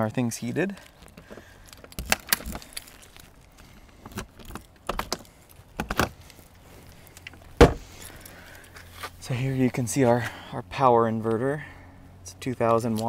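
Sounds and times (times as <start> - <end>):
keys and latch clicking: 4.1 - 6.1.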